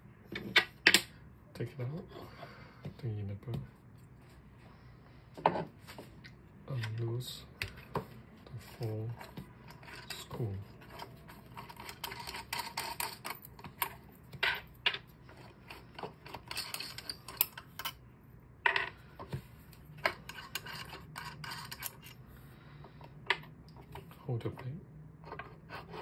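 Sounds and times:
small metallic clicks and scrapes: 0:08.8 - 0:18.0, 0:20.0 - 0:22.2.

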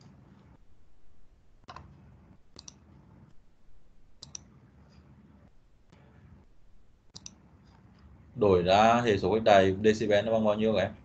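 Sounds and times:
faint low hum: 0:00.0 - 0:11.0
faint sharp clicks: 0:04.2 - 0:05.0.

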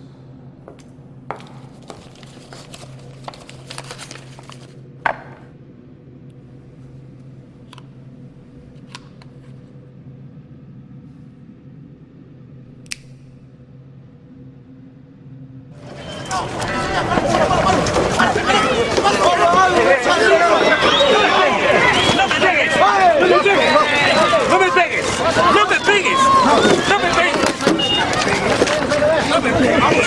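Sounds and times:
steady low hum: 0:00.0 - 0:30.0
sharp click: 0:12.8 - 0:13.3.

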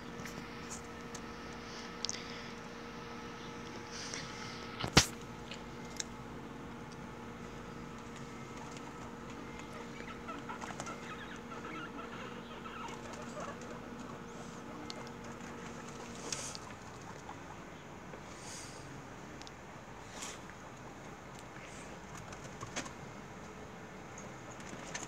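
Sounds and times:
steady background hum: 0:00.0 - 0:25.0
guinea pigs clucking: 0:07.9 - 0:18.7.

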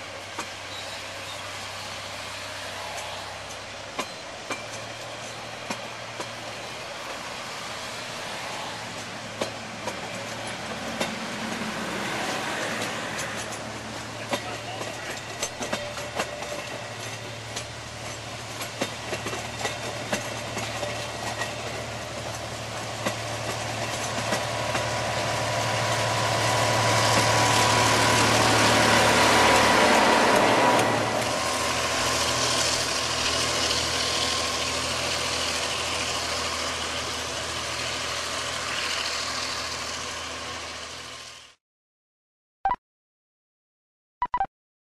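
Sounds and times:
diesel locomotive engine hum: 0:00.0 - 0:41.6
wheel clicks over rail joints: 0:12.6 - 0:25.0.

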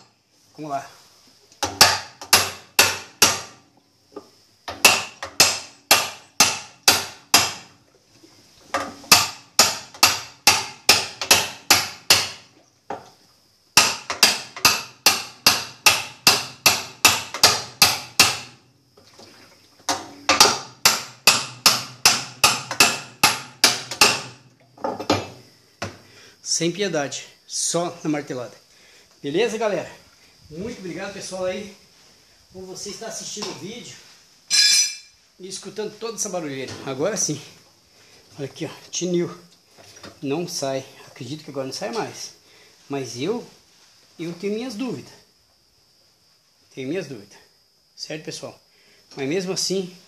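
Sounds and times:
sledgehammer hitting metal hub: 0:19.9 - 0:24.4, 0:34.5 - 0:35.1.

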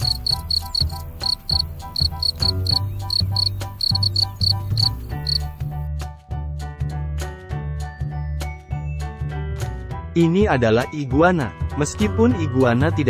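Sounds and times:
cricket chirping: 0:00.0 - 0:05.7
background music with bass line: 0:00.0 - 0:13.0.

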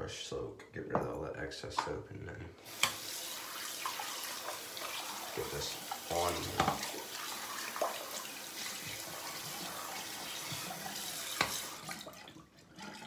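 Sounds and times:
tap water running: 0:02.6 - 0:13.0.

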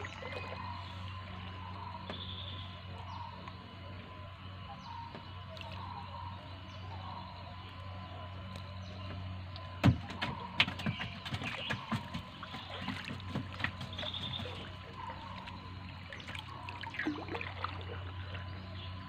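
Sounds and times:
steady low hum: 0:00.0 - 0:19.0
net splashing into water: 0:16.1 - 0:18.0.

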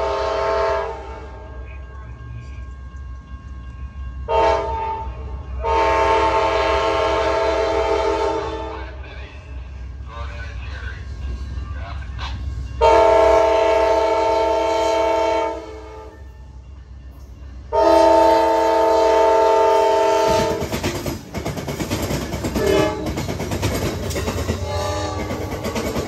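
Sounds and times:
locomotive air horn blasts: 0:00.0 - 0:01.5, 0:04.3 - 0:08.9, 0:12.8 - 0:16.2, 0:17.7 - 0:20.6, 0:22.6 - 0:23.1, 0:24.6 - 0:25.4
train wheels clattering over track: 0:19.2 - 0:26.0.

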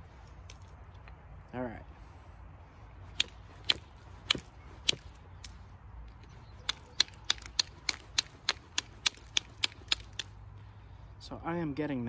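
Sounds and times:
knapping tool clicking on flint: 0:00.2 - 0:00.8, 0:03.1 - 0:05.6, 0:06.2 - 0:10.4.

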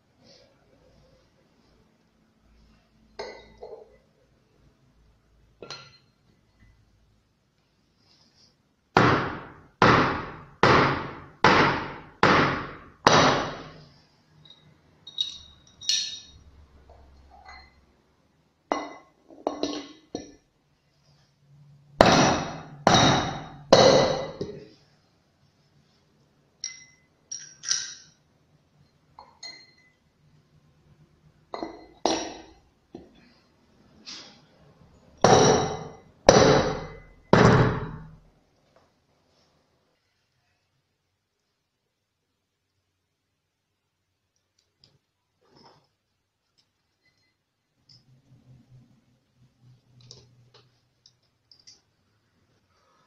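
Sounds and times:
light metal clinks: 0:14.4 - 0:16.5, 0:26.6 - 0:28.2, 0:51.0 - 0:51.9.

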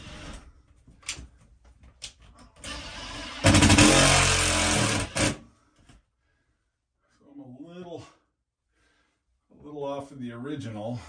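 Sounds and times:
cordless drill driving a screw: 0:02.6 - 0:05.4.

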